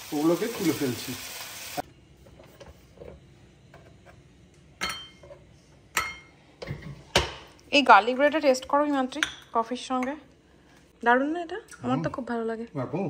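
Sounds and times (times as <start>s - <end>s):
frying sizzle: 0.0s - 1.9s
ceramic plate clinking: 4.8s - 5.4s.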